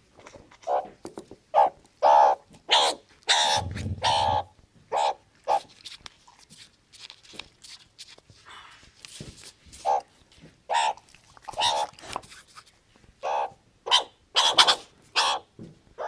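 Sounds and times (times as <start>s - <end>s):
animal's short sharp calls: 1.6s - 5.6s, 13.3s - 15.4s.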